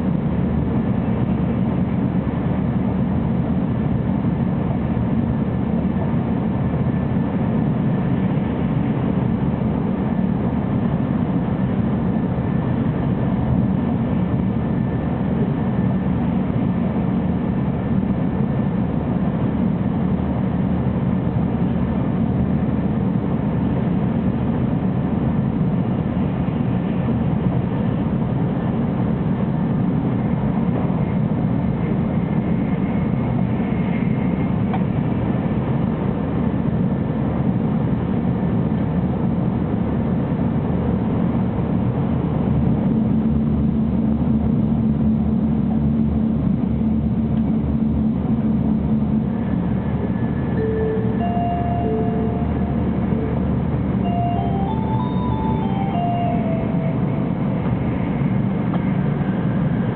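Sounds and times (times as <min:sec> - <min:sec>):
train running rumble: 0:00.0 - 0:59.9
low steady hum: 0:42.1 - 0:59.9.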